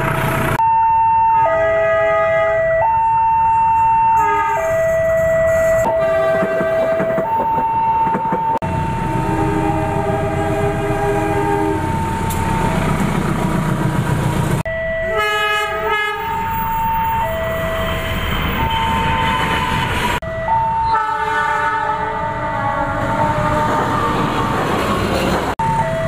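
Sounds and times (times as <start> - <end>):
locomotive horn blasts: 1.4 - 2.9, 4.2 - 7.4, 8.6 - 12.4, 14.8 - 17.0, 20.8 - 24.2
train rumble and wheel clatter: 3.8 - 21.0, 21.6 - 26.0.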